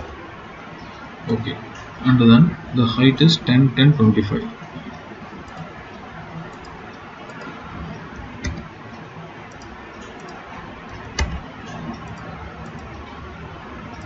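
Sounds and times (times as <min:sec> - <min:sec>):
background hiss and hum: 0:00.0 - 0:14.0
computer mouse clicks: 0:04.9 - 0:08.7, 0:09.5 - 0:13.0
keyboard key presses: 0:08.4 - 0:08.7, 0:09.5 - 0:12.9.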